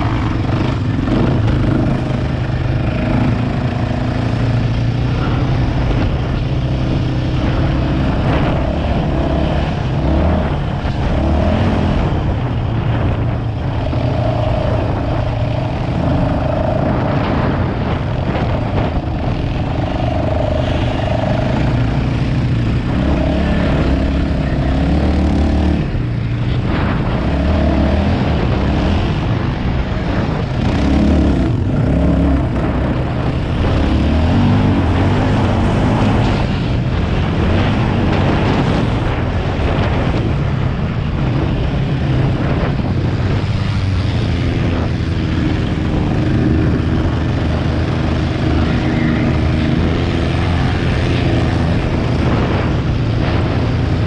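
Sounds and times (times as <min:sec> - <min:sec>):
quad bike engine running hard: 0:00.0 - 0:54.0.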